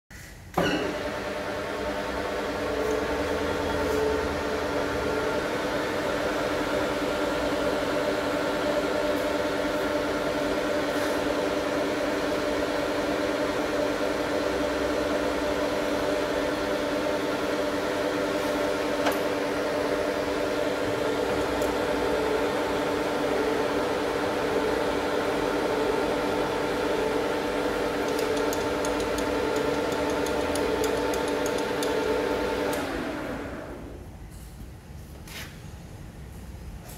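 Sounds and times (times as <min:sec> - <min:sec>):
lathe whining: 0:11.4 - 0:34.0.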